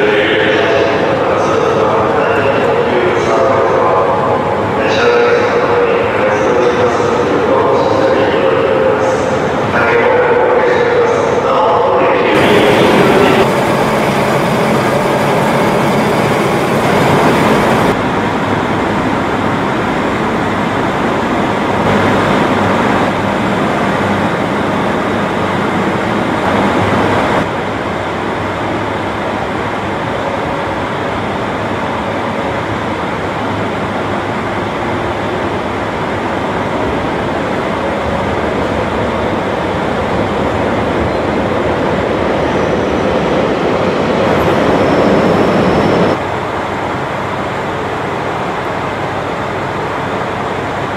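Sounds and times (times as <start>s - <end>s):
diesel railcar engine idling: 12.4s - 41.7s.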